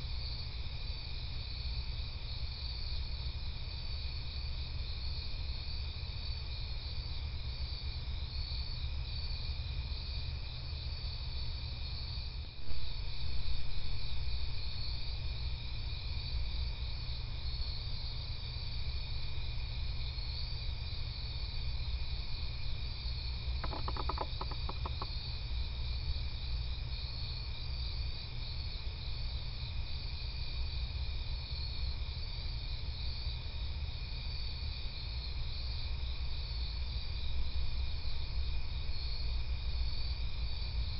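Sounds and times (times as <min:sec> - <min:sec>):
crickets trilling: 0:00.0 - 0:40.9
low steady hum: 0:00.0 - 0:40.9
rapid clicks: 0:23.6 - 0:25.1.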